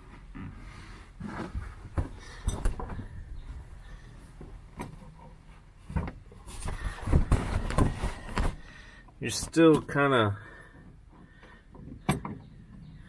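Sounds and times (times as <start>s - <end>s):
carpet rustling and rubbing: 5.3s - 8.7s.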